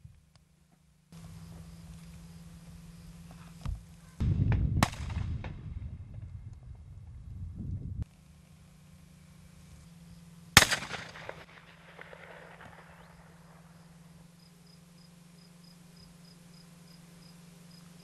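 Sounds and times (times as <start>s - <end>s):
low steady hum: 0.0s - 18.0s
shotgun shot echoing: 4.8s - 5.6s, 10.6s - 13.8s.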